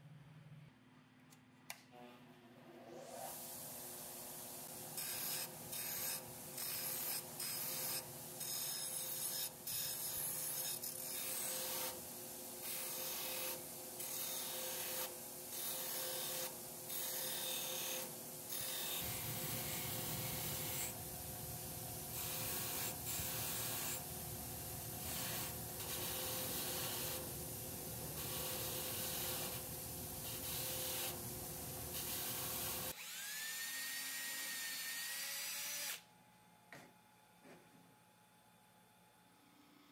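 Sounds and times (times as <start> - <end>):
steady hum: 18.0 - 32.9
power tool motor whine: 31.9 - 36.0.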